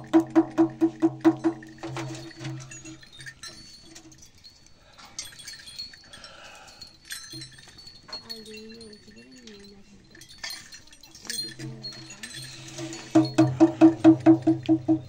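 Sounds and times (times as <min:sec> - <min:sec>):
frame drum beats: 0:00.0 - 0:02.7, 0:12.6 - 0:15.0
small bells jingling: 0:00.0 - 0:15.0.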